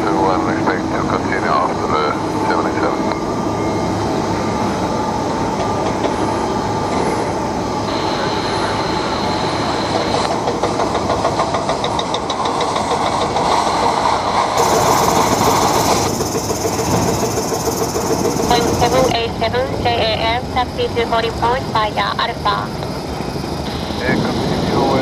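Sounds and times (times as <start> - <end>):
jet engines rumble and whine: 0.0 - 25.0.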